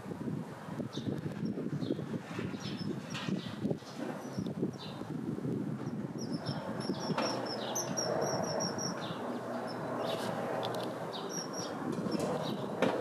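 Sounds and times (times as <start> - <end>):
kingfisher piping calls: 6.2 - 10.3.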